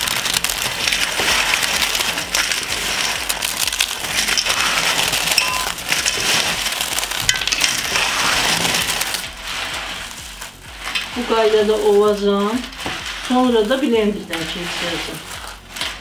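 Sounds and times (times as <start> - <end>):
cake trimmings crunching by hand: 0.0 - 11.2, 15.0 - 16.0.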